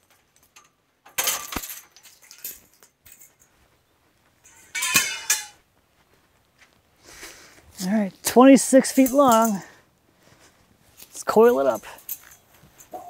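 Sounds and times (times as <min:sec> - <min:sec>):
metallic ring: 0:04.4 - 0:05.6
saw blade clinking and rattling: 0:04.4 - 0:05.6, 0:08.6 - 0:09.7.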